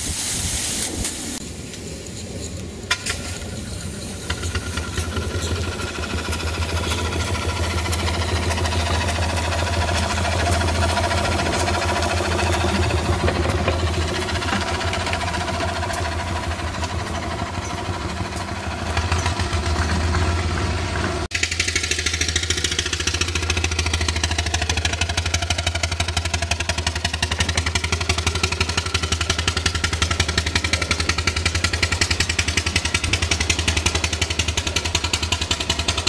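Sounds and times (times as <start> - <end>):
steam hissing: 0.0 - 19.2
steam engine chuffing: 0.0 - 36.0.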